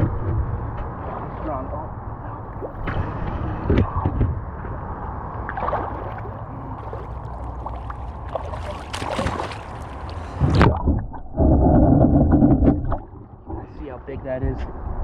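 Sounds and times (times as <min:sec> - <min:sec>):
wind rumble on microphone: 0:00.0 - 0:15.0
water sloshing and splashing: 0:05.4 - 0:13.6.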